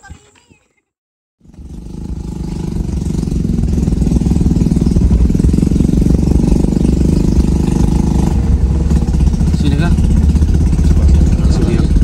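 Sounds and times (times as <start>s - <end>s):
motorcycle engine running: 1.4s - 12.0s.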